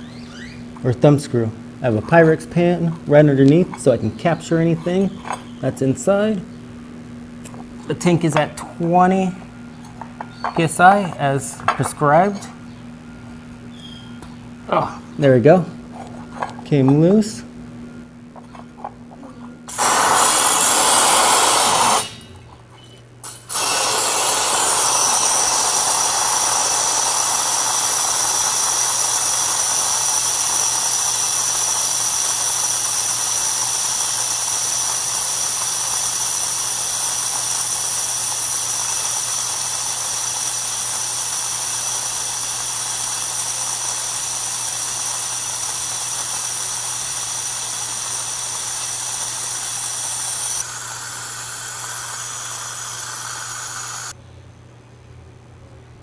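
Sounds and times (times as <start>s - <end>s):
thin high whistle: 0.0s - 0.7s
compressed air spraying hiss: 19.7s - 22.2s, 23.2s - 54.2s.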